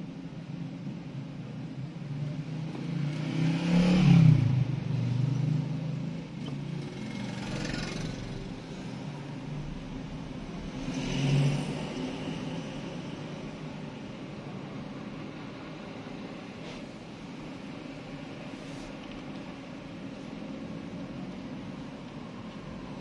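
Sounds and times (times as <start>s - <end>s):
vehicle engines running: 2.5s - 23.0s
engine revving and passing: 2.6s - 6.1s, 6.7s - 13.5s.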